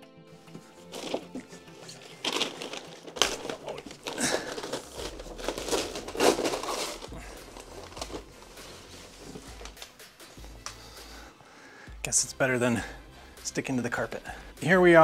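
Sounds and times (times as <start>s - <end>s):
paper crumpling and rustling: 0.6s - 10.0s.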